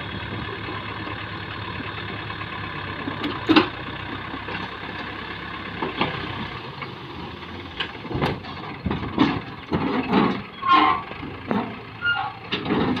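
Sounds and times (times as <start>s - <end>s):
tractor engine running: 0.0s - 13.0s
knocks and clatter: 7.8s - 10.5s, 11.2s - 11.8s, 12.5s - 13.0s.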